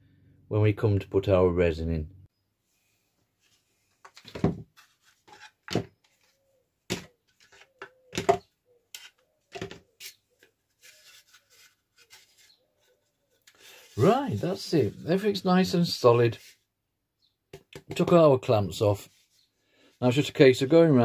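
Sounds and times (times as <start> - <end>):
handling rustle: 9.0 - 14.9.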